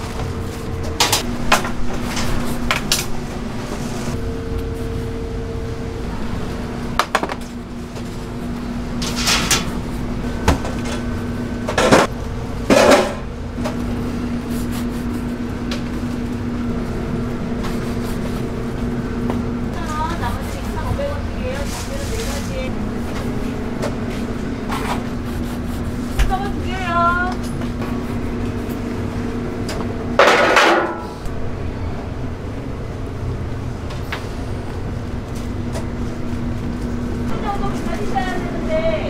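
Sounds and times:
steady low hum: 0.0 - 39.0
metal trays clattering: 9.0 - 9.7, 30.2 - 31.2.

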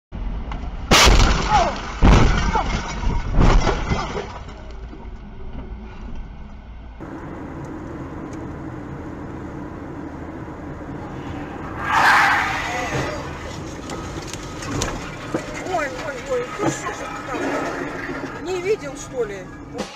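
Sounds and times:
car crashing into trailer: 0.9 - 4.6
car driving on highway: 4.7 - 19.8.

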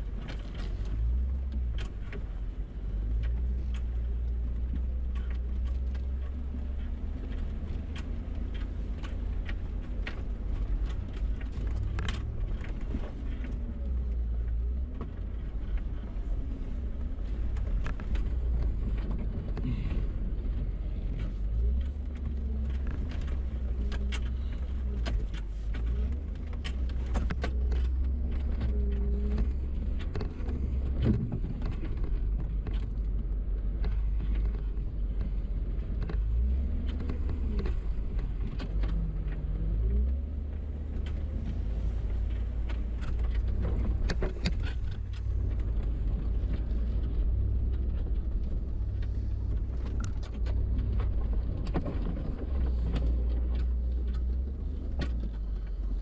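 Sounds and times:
off-road vehicle engine rumble: 0.0 - 56.0.

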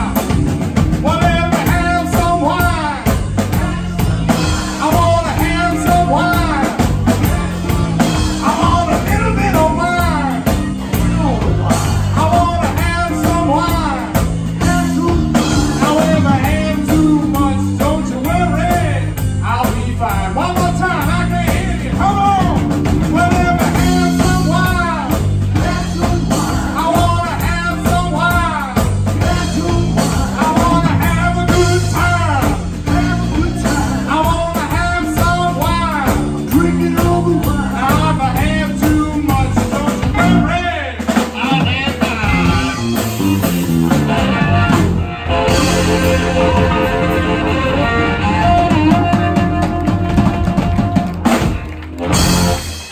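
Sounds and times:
electric blues band playing: 0.0 - 52.9
bending lead guitar line: 41.4 - 52.9.

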